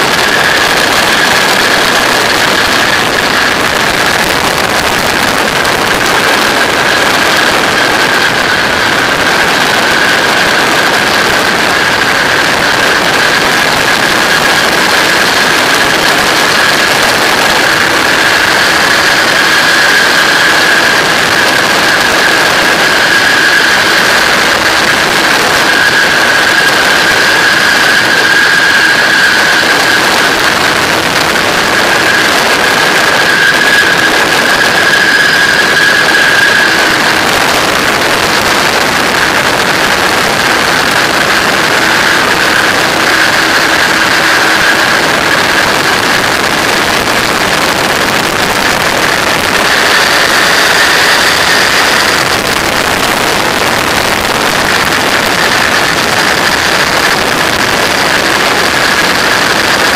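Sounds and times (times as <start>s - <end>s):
high tone: 0.0s - 58.1s
light aircraft engine and propeller: 0.0s - 59.9s
wind rushing on microphone: 0.0s - 59.9s.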